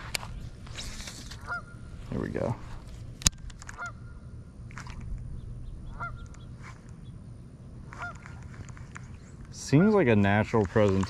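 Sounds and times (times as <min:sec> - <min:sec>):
goose honking: 0:01.4 - 0:01.8, 0:03.7 - 0:04.2, 0:05.9 - 0:06.3, 0:07.9 - 0:08.4.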